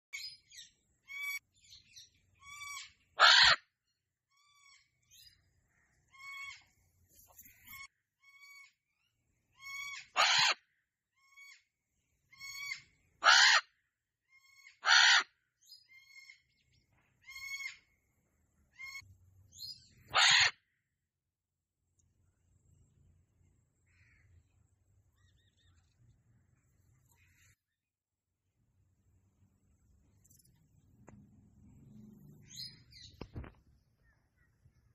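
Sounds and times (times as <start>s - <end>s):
cockatoos squawking: 2.4s - 3.6s, 9.7s - 10.6s, 12.4s - 13.7s, 14.6s - 15.3s, 20.1s - 20.6s.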